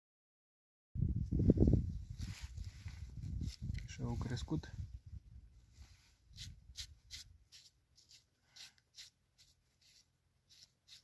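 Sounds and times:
gloved hand scraping soil: 5.6s - 11.0s.

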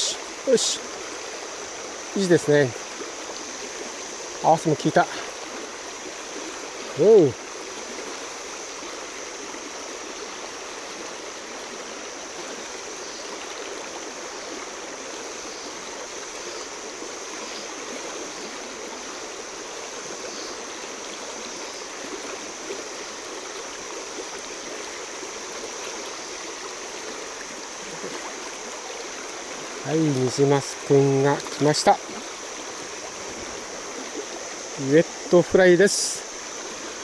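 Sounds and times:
river rushing over stones: 0.0s - 37.0s.

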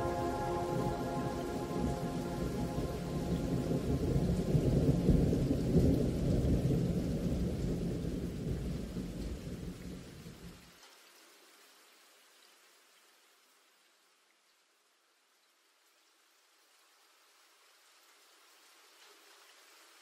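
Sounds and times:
thunder rumbling: 0.0s - 10.3s
steady rain: 0.0s - 20.0s.

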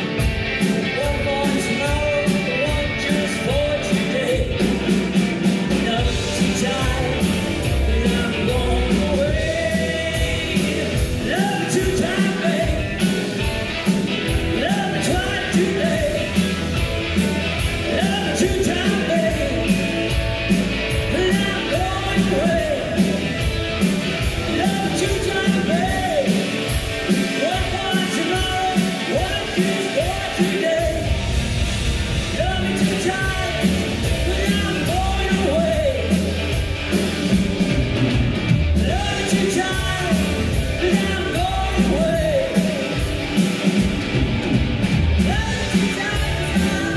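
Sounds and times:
electric guitars: 0.0s - 46.9s
steady drum beat: 0.0s - 46.9s.

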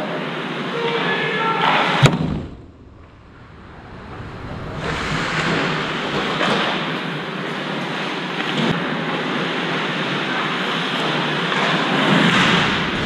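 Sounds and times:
ice hockey rink ambience: 0.0s - 3.5s, 4.1s - 13.0s
sharp crack: 2.0s - 7.8s, 12.2s - 13.0s.

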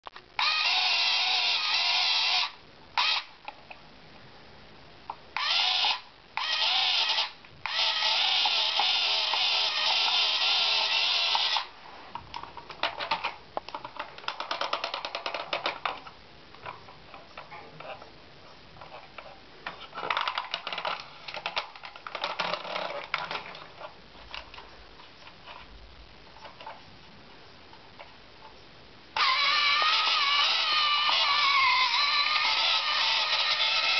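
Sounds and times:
toy rapid clicking: 29.2s - 33.9s.

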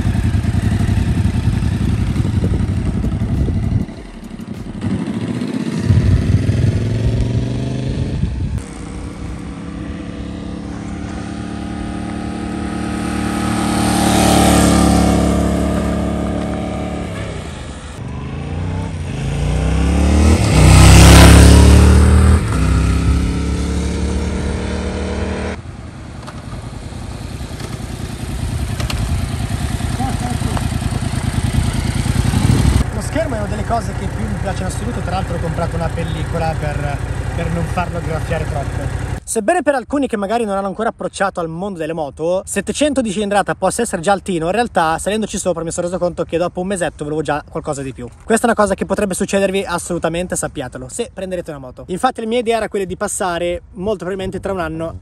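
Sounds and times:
motorcycle engine revving: 0.0s - 39.2s.

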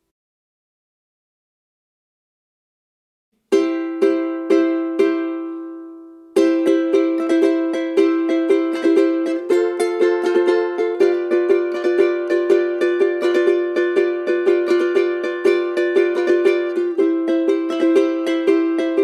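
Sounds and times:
small guitar strummed: 3.5s - 19.0s.

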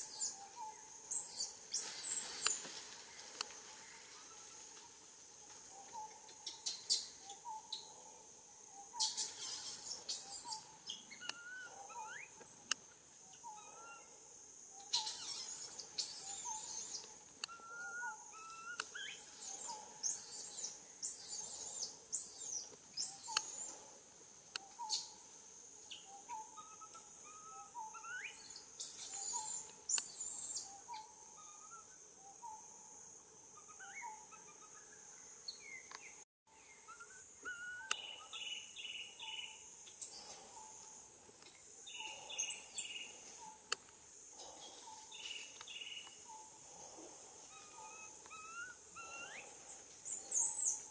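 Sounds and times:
birds chirping and calling: 0.0s - 3.6s, 5.8s - 8.1s, 8.8s - 14.1s, 14.8s - 24.0s, 24.6s - 25.2s, 25.9s - 32.6s, 33.6s - 50.9s.

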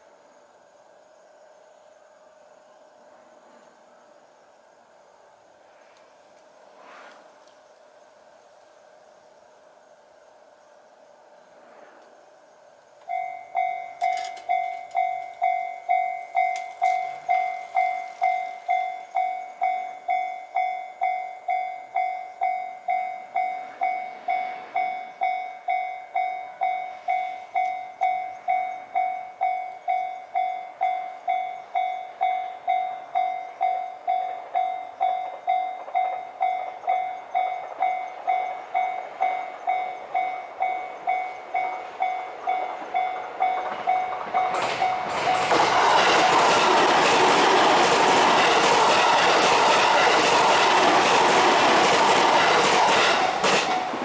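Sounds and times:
train arriving: 0.0s - 54.0s
railroad crossing bell ringing: 13.0s - 54.0s.

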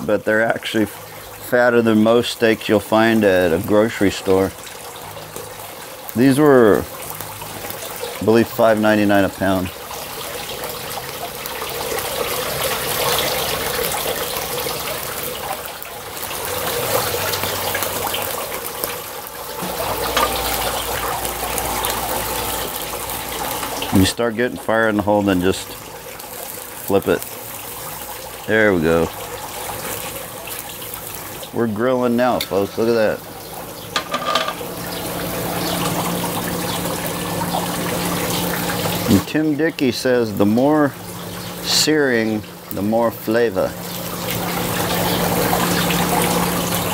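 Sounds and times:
steaks sizzling on a grill: 0.1s - 46.9s.

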